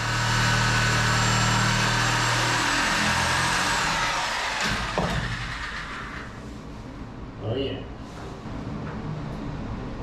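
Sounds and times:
electric power saw cutting wood: 0:00.0 - 0:06.3.

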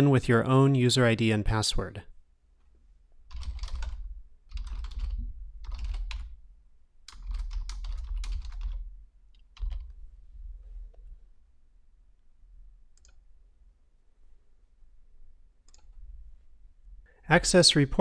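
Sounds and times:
typing on computer keyboard: 0:03.3 - 0:06.4, 0:07.1 - 0:10.0, 0:13.0 - 0:13.2.

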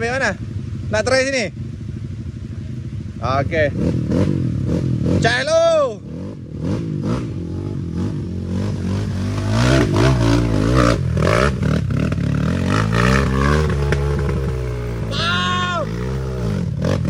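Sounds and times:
motorcycle engine revving: 0:00.0 - 0:17.0.

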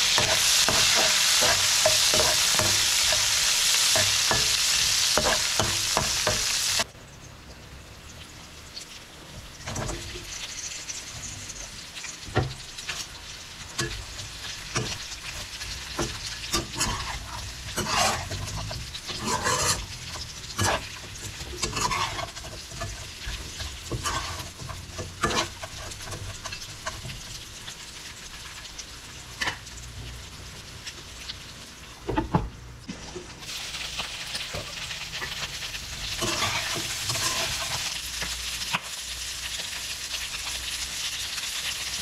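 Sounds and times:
utensil scraping and knocking pan: 0:00.0 - 0:06.5, 0:14.7 - 0:27.2
meat sizzling in a pan: 0:00.0 - 0:06.9, 0:08.0 - 0:32.0, 0:33.4 - 0:42.0.

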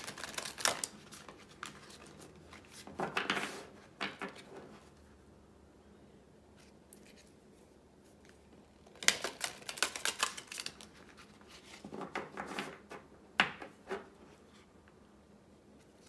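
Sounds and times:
cards being riffle-shuffled: 0:00.0 - 0:04.5, 0:08.1 - 0:12.9.

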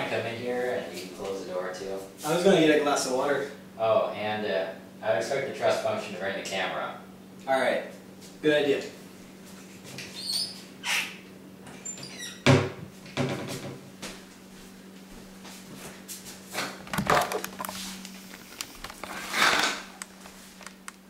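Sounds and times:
steady low hum: 0:00.0 - 0:21.0
household knocks and bumps: 0:16.8 - 0:17.6.

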